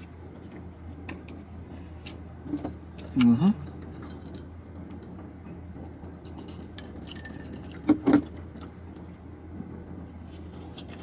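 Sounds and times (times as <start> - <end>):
steady low hum: 0.0 - 11.0
glass clinking: 6.6 - 8.4.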